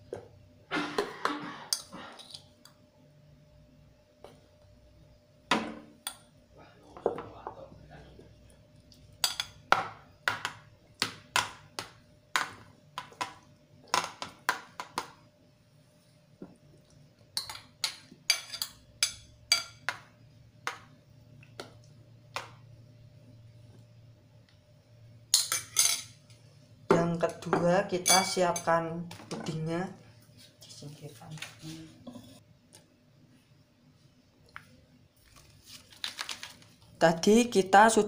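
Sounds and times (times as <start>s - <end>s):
metal spoon clinking on glass bowl: 28.0s - 28.7s.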